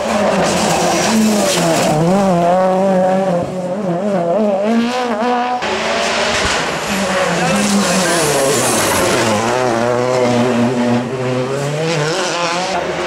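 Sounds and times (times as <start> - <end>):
rally car engine revving: 0.0 - 13.0.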